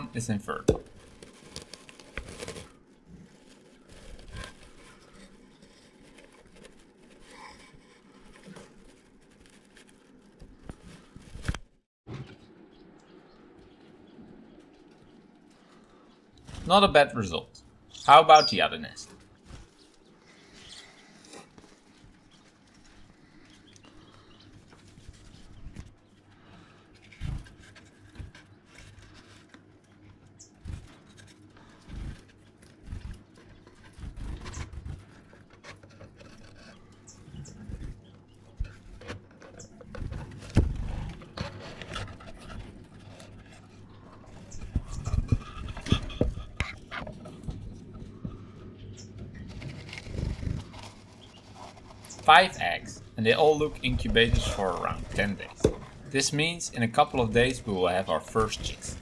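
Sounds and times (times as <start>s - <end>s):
finches chirping: 17.9s - 19.0s.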